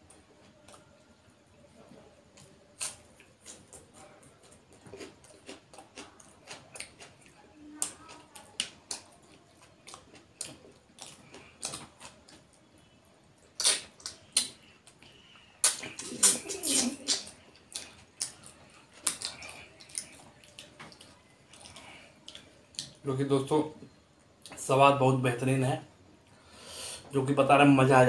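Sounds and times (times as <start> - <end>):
man chewing: 2.4 - 23.0.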